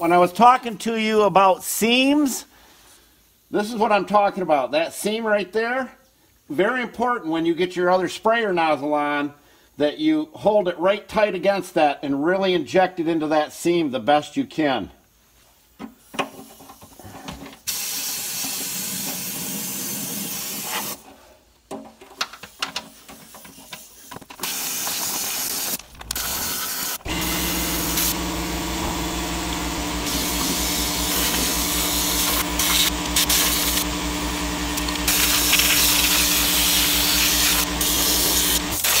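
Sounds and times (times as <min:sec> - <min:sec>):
spray gun hissing: 0:23.3 - 0:39.0
motor pulsing hum: 0:25.8 - 0:38.9.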